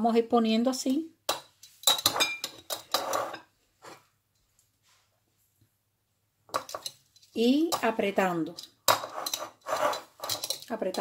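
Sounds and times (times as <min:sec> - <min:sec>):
tongs clinking against glass jar: 0:08.5 - 0:11.0.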